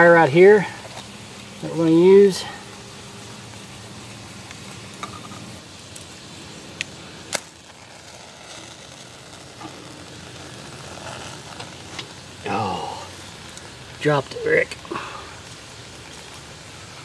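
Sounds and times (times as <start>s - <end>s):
faint hiss of burning: 0.0s - 17.0s
tinder stick striking: 6.8s - 7.8s.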